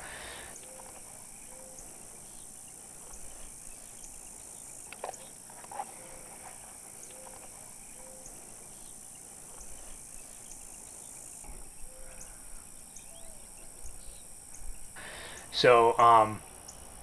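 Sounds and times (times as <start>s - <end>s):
chorus of insects: 0.0s - 17.0s.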